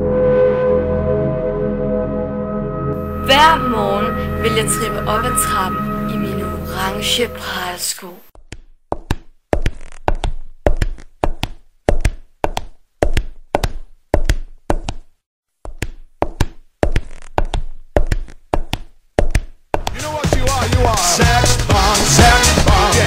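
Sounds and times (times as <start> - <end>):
clog footsteps on stairs: 8.4 - 21.1.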